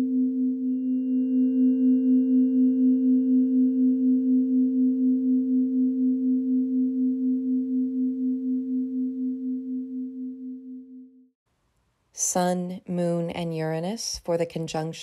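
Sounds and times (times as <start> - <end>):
beating sine tones: 0.0 - 11.3.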